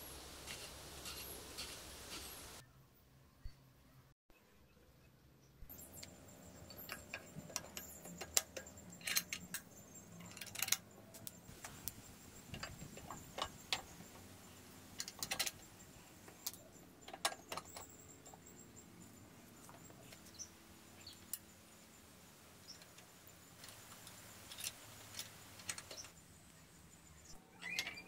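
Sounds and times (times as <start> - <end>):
metal brackets clinking: 5.8 - 21.5.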